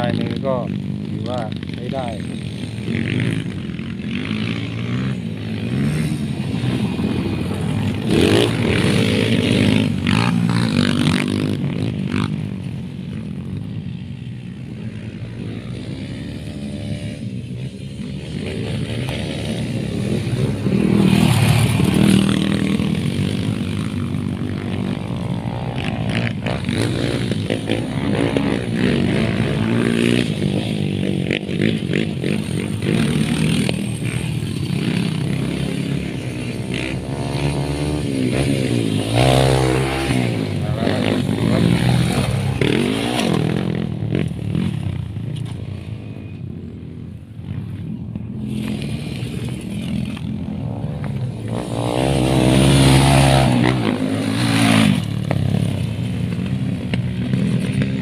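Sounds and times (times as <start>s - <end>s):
dirt bike engine revving: 0.0s - 12.5s, 14.7s - 58.0s.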